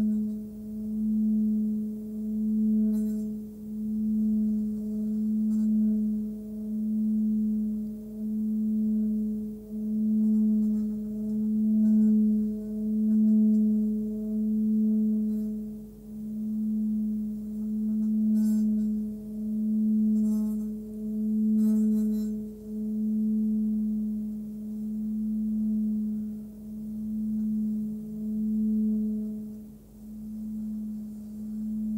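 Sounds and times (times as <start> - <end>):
singing bowl steady tone: 0.0 - 31.9
mallet rasping on bowl rim: 16.6 - 23.6.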